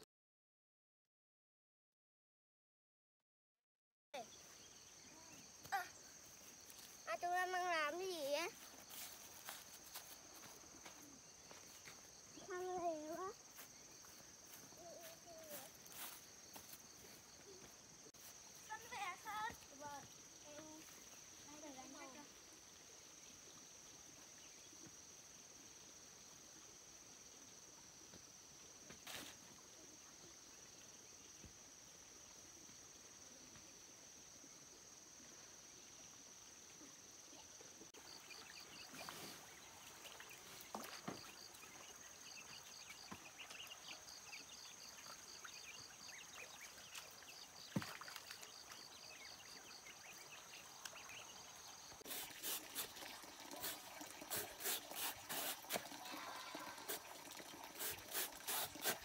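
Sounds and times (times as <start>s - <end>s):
insects droning: 4.2s - 59.0s
water splashing and trickling: 4.6s - 27.5s, 36.7s - 59.0s.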